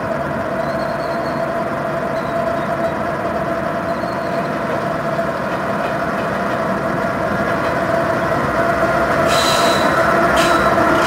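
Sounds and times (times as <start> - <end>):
diesel locomotive engines droning: 0.0 - 11.0
metallic wheel squeal: 9.3 - 11.0.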